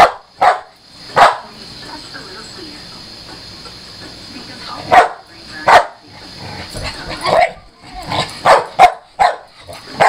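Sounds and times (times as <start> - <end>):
dog barking sharply: 8.4 - 9.5.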